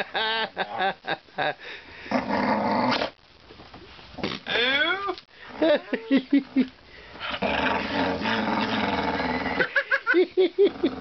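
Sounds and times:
dog growling: 7.2 - 9.8.

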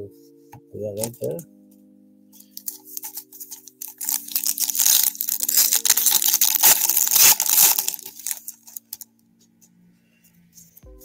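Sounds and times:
wrapper tearing and crinkling: 2.5 - 9.0.

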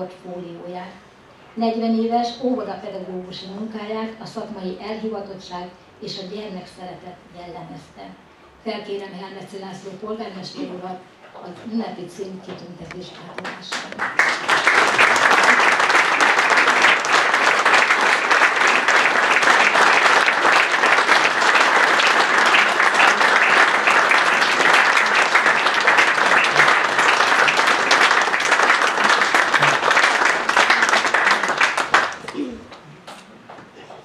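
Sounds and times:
audience applauding: 13.4 - 32.8.

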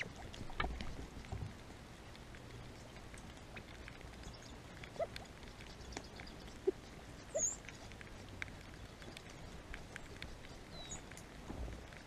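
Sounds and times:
bird high chirp: 10.7 - 11.1.

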